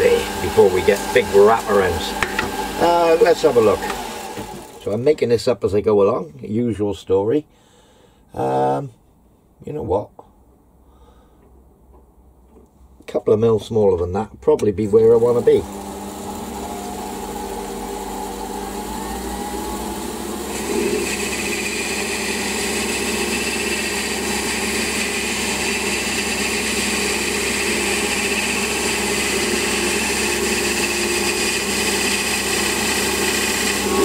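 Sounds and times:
metal lathe humming: 0.0 - 4.9, 15.1 - 34.0.

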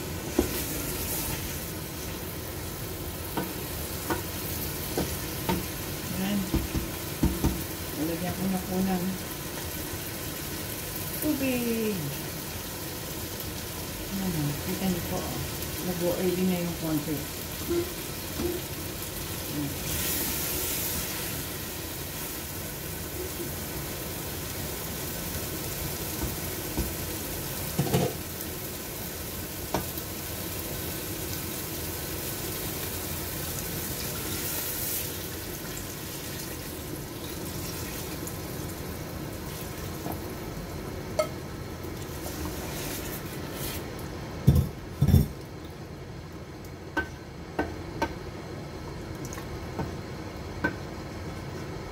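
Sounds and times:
curry sizzling in a pot: 0.0 - 47.4
wooden spoon knocking on pot: 6.4 - 7.6.

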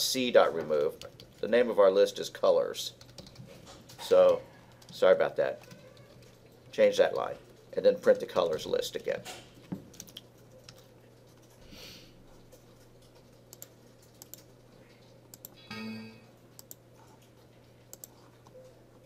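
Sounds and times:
keyboard and mouse clicks: 9.8 - 10.9, 12.5 - 15.6, 16.6 - 17.2, 17.9 - 18.6
low steady hum: 12.2 - 19.0
computer error chime: 15.6 - 16.4.

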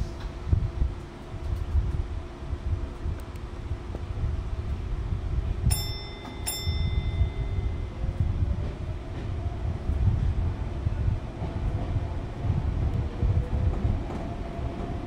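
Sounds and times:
train rumbling: 0.0 - 15.0
short bell dings: 5.7 - 8.0.

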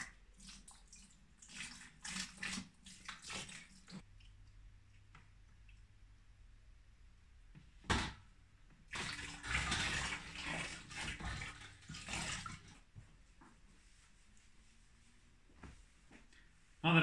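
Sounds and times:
liquid sloshing in plastic bucket: 0.0 - 4.3, 8.8 - 13.1.

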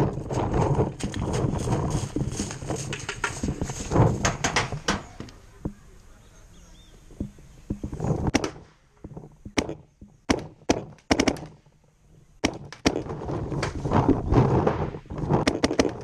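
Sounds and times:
paintball markers firing: 8.3 - 8.8, 9.5 - 11.6, 12.4 - 13.8, 15.3 - 16.0.

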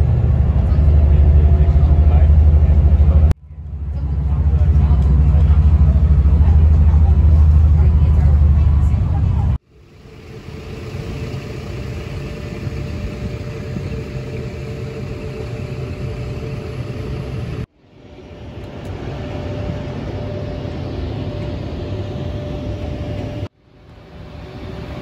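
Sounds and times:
bus driving rumble: 0.0 - 17.7
faint steady whine: 0.0 - 25.0.

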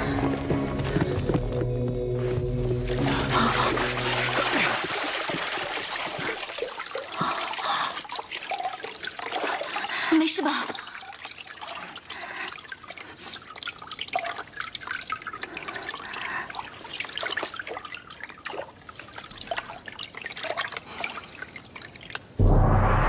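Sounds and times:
water splashing and dripping: 2.8 - 22.4
deep gong stroke: 22.4 - 23.0.

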